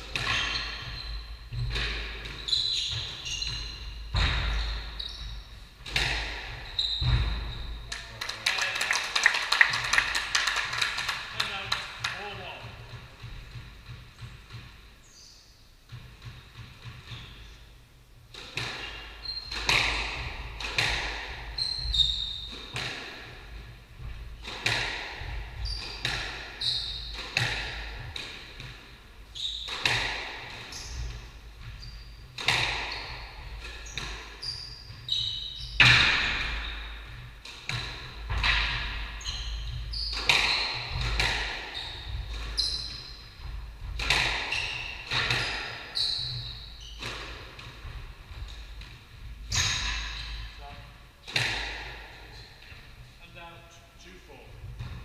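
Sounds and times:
squash ball hits echoing: 0.0 - 5.0, 5.8 - 7.8, 18.3 - 52.9
shoes squeaking on wooden floor: 0.1 - 7.9, 12.2 - 17.6, 18.4 - 51.1.

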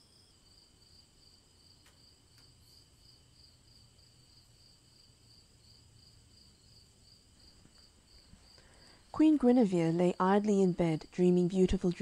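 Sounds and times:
crickets chirping: 0.0 - 11.6.

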